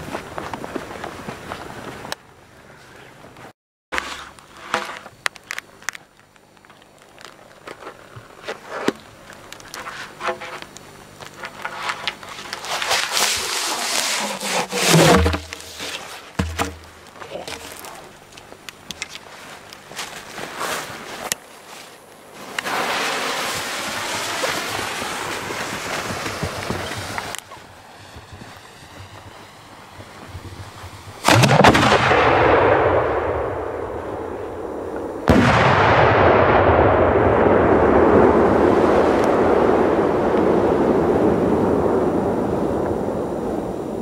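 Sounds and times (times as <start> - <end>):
firework launch bang: 31.2 - 34.4, 35.3 - 41.0.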